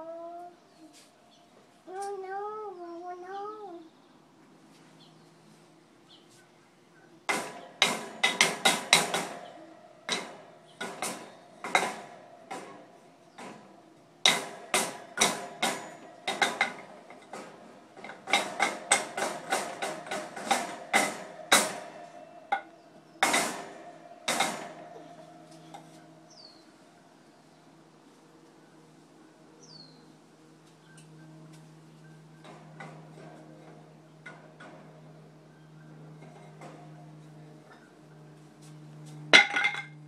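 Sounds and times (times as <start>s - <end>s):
sticks clattering on metal crate: 7.3s - 26.5s, 39.4s - 40.0s.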